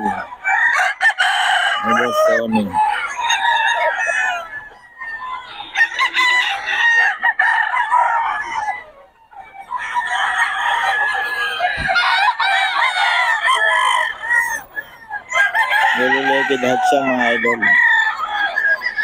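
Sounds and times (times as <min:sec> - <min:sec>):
roosters crowing: 0:00.0 - 0:19.0
low thump: 0:11.8 - 0:12.0.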